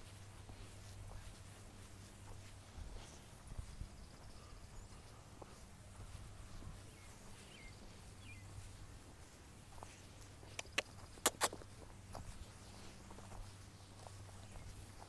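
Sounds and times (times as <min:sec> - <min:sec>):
faint bird chirps: 0:03.0 - 0:08.7.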